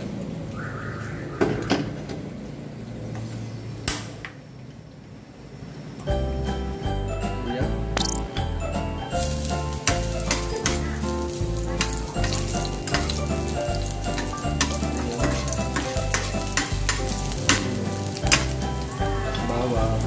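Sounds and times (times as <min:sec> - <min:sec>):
ginger sizzling in hot oil: 0:09.1 - 0:20.0
metal spoon clinking on pan: 0:09.2 - 0:19.0.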